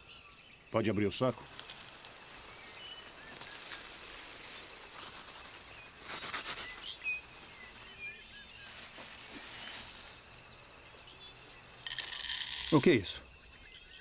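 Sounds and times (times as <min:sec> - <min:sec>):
faint forest background: 0:00.0 - 0:14.0
small birds chirping: 0:00.0 - 0:14.0
plastic sack rustling: 0:01.5 - 0:10.2.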